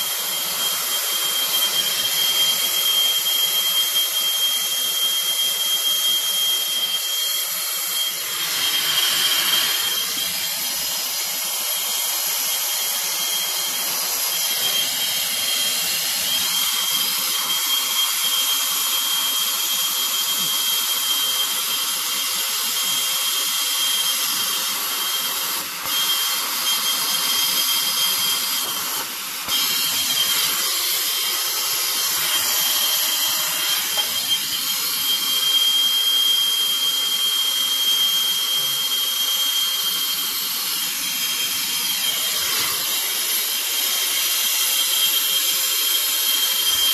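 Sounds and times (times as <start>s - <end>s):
thin high whistle: 0.0s - 22.0s, 22.8s - 46.9s
torch flame hissing: 8.0s - 11.4s.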